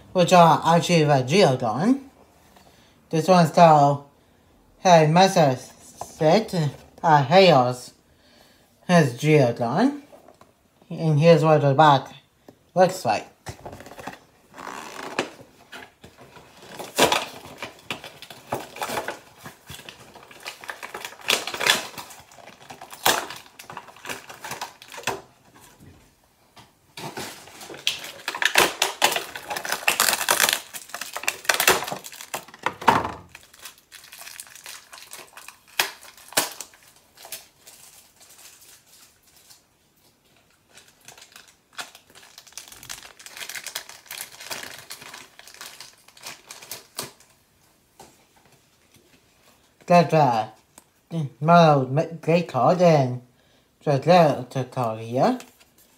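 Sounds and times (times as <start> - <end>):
packaging crinkling and tearing: 13.5 - 25.8, 27.0 - 47.4, 55.3 - 55.9.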